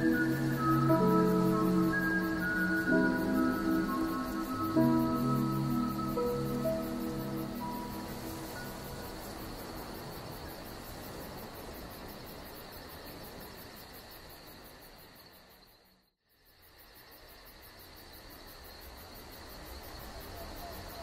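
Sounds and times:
even hiss: 0.0s - 15.3s
crickets chirping: 0.0s - 21.0s.

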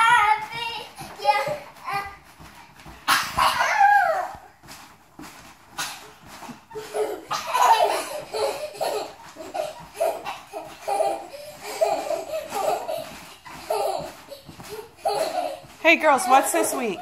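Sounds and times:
girls laughing: 6.7s - 17.0s.

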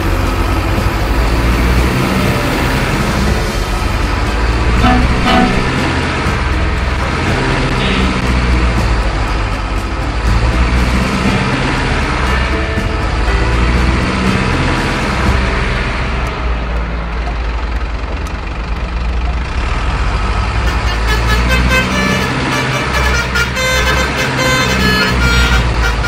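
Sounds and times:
heavy truck engine running: 0.0s - 26.0s
truck horn toots: 4.6s - 6.6s, 7.7s - 8.6s, 20.6s - 26.0s.

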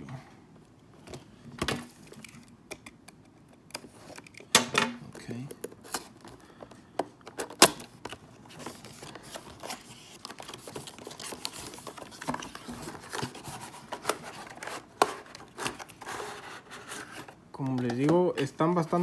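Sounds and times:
plastic and cardboard rustling: 5.0s - 19.0s.

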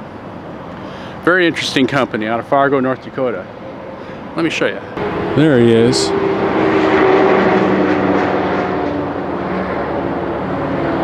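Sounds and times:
engine droning: 2.9s - 11.0s
humming tones: 5.0s - 10.5s.

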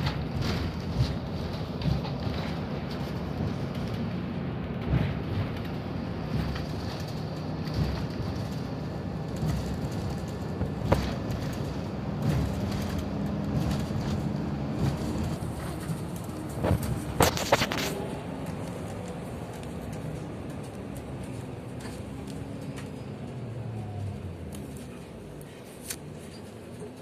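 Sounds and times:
knocks and rattles: 0.0s - 19.1s
bus engine and road noise: 0.0s - 27.0s.

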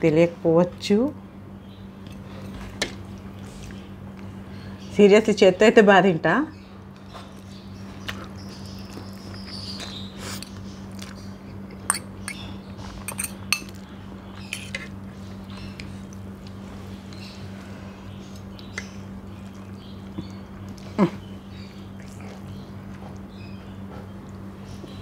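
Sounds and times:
steady low hum: 0.0s - 25.0s
chewing: 7.0s - 12.1s, 18.2s - 24.5s
fork clinking on plate: 13.1s - 13.7s.

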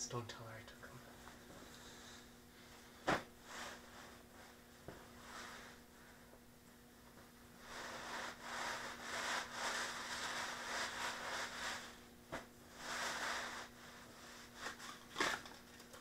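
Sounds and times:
cloth rag rubbing on concrete: 7.6s - 12.0s, 12.7s - 14.8s.

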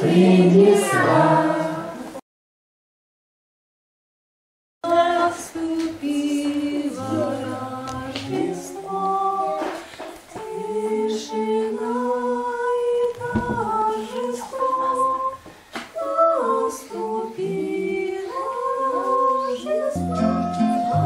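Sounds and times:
woman singing unaccompanied: 4.8s - 21.0s.

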